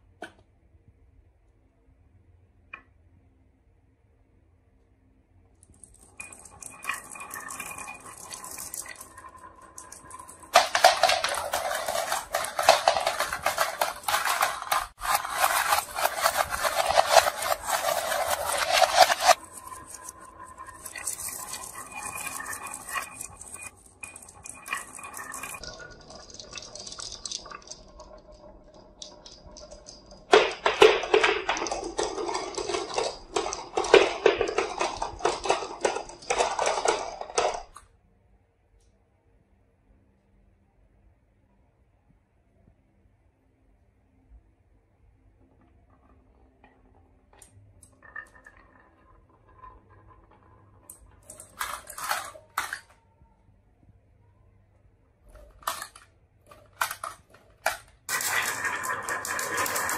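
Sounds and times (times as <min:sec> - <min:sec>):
glass marbles rattling on wooden track: 0:05.7 - 0:37.8, 0:46.0 - 0:53.0, 0:55.3 - 0:59.9.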